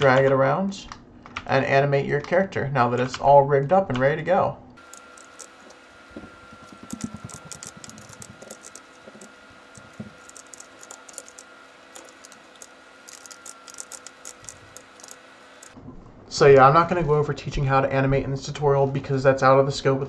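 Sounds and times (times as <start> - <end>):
keyboard and mouse clicking: 4.8 - 5.8, 6.5 - 15.8
faint high whine: 4.8 - 16.5.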